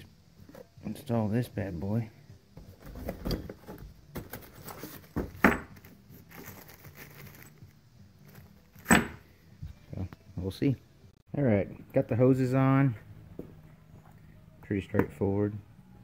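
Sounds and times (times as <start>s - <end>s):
parts knocking against cardboard box: 2.6s - 5.9s
metal bolts clinking in plastic bag: 5.7s - 8.8s.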